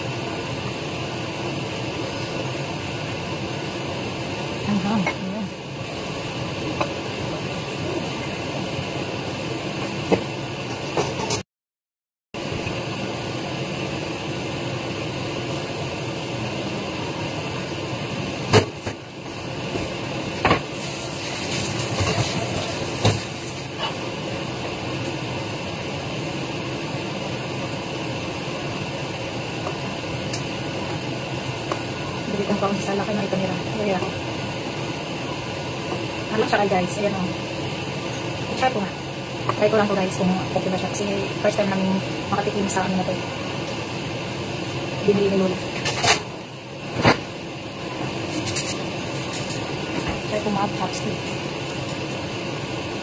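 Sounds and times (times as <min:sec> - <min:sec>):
fan whooshing: 0:12.4 - 0:53.0.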